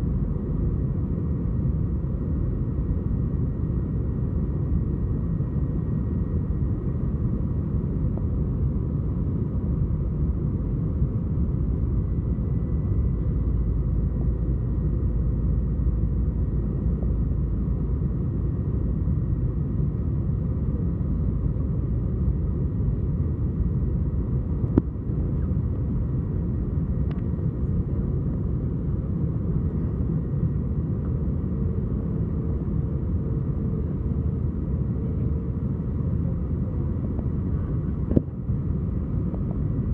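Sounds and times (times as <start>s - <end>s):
aircraft cabin engine rumble: 0.0s - 39.9s
faint steady whine: 0.0s - 39.9s.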